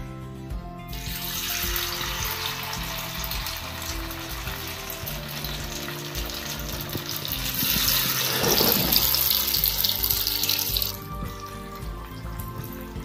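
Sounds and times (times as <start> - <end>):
background music: 0.0 - 13.0
food deep-frying in oil: 0.9 - 11.2.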